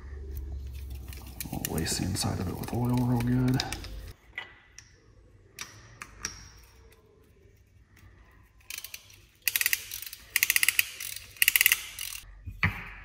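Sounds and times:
rapid ratchet clicks: 8.7s - 12.2s.

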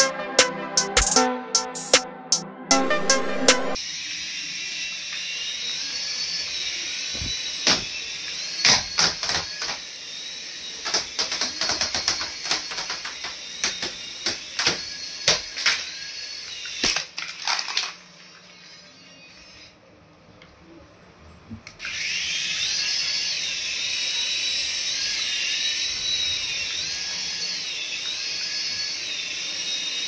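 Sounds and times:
toy helicopter rotor whine: 3.7s - 20.0s, 21.8s - 30.0s.

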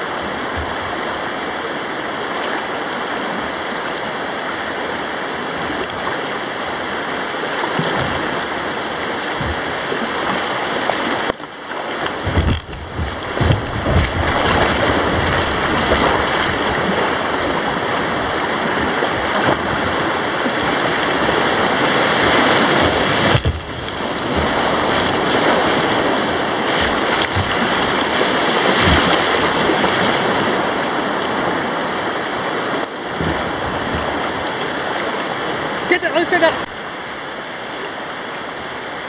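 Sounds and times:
river rapids rushing: 0.0s - 39.0s
low thumps: 7.8s - 10.5s, 12.0s - 20.0s, 22.6s - 25.3s.

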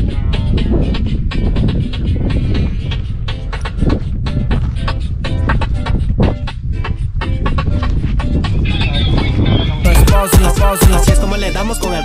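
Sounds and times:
upbeat dance music: 8.6s - 12.0s.

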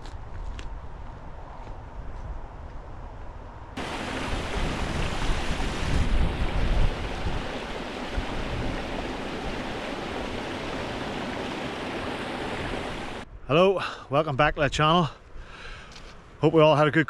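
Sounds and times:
wind buffeting microphone: 0.7s - 13.4s
stream rushing over rocks: 3.8s - 13.2s.

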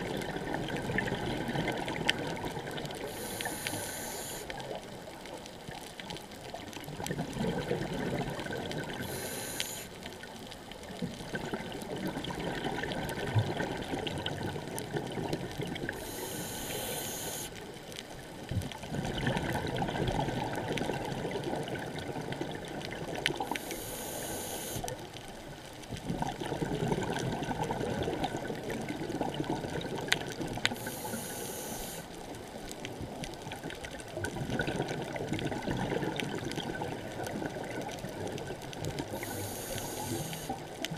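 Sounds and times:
exhaled bubbles rushing: 0.0s - 3.0s, 6.9s - 9.0s, 11.2s - 16.0s, 18.9s - 23.2s, 26.1s - 30.6s, 33.6s - 39.2s
regulator inhalation hiss: 3.0s - 4.5s, 9.0s - 10.0s, 16.0s - 17.6s, 23.5s - 24.9s, 30.8s - 32.1s, 39.1s - 40.6s.

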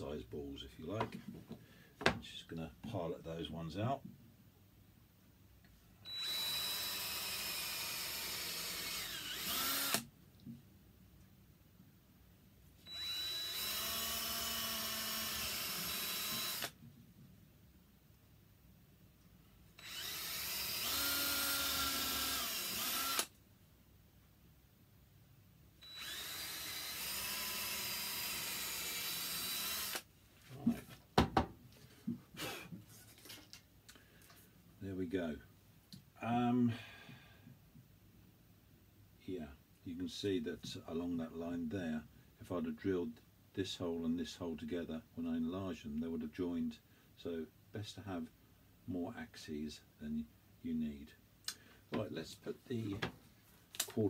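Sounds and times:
drill boring into wood: 6.0s - 10.1s, 12.8s - 16.8s, 19.8s - 23.3s, 25.8s - 30.1s.

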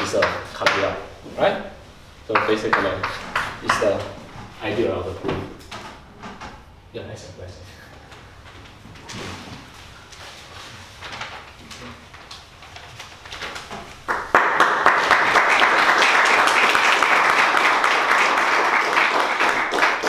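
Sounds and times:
faint room noise: 0.0s - 20.0s
audience applauding: 14.1s - 20.0s.

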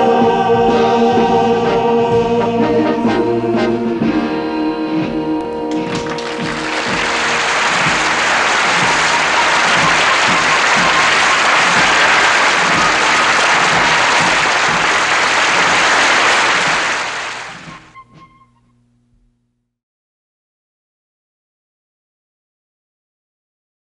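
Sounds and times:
audience applauding: 5.7s - 18.1s.

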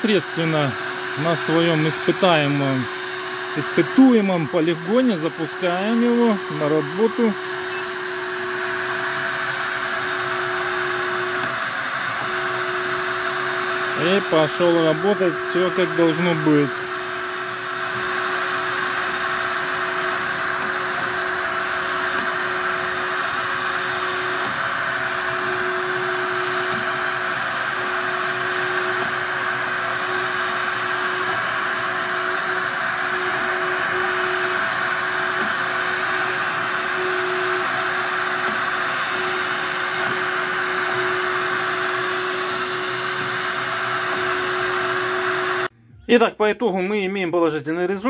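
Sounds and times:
window cleaning robot fan whirring: 0.0s - 45.7s.

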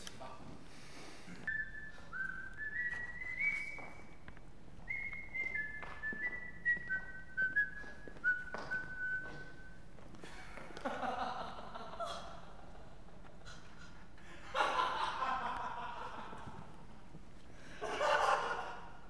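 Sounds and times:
person whistling a tune: 1.4s - 4.2s, 4.9s - 9.8s.

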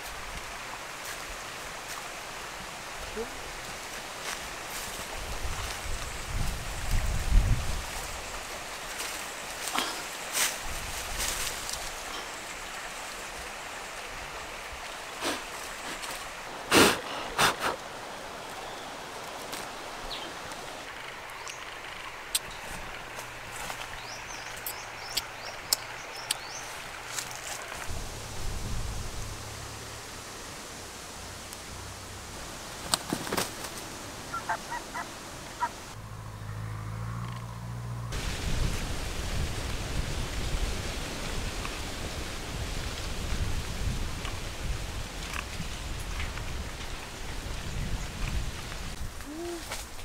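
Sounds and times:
tree branch rustling: 0.0s - 13.5s, 14.3s - 36.0s, 38.2s - 50.0s
outdoor hiss: 0.0s - 36.0s, 38.1s - 50.0s
hen clucking: 34.3s - 35.9s.

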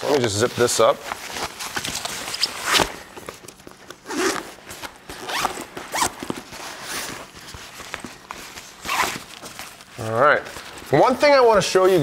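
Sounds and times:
zipper being zipped closed: 4.0s - 7.2s, 8.8s - 9.2s.

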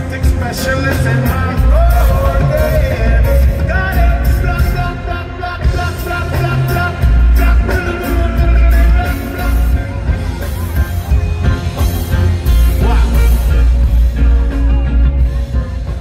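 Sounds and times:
man singing: 0.0s - 10.4s, 12.4s - 14.6s
drum kit with cymbals: 0.0s - 16.0s
heavy pulsing bass line: 0.0s - 16.0s.

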